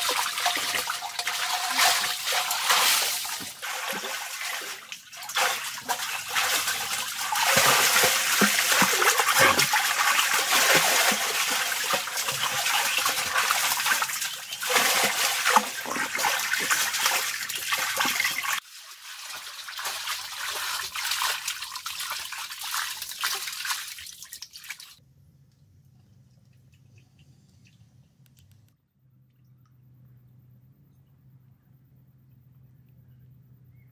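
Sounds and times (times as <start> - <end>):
water splashing from swimming: 0.0 - 25.0.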